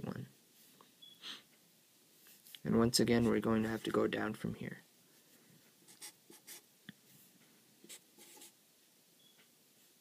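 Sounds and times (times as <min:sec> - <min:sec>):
marker scratching on paper: 0:05.9 - 0:06.6, 0:07.8 - 0:08.6.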